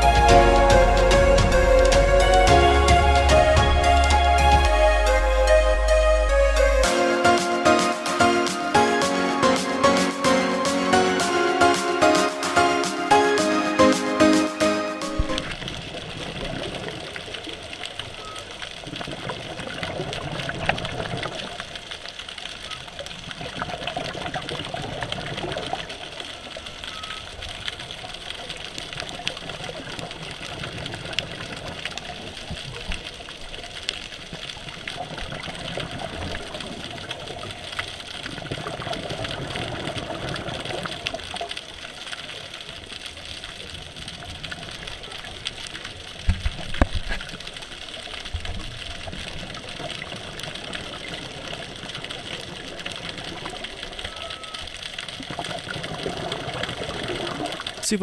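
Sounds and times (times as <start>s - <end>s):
regulator bubbling underwater: 48.7s - 57.9s.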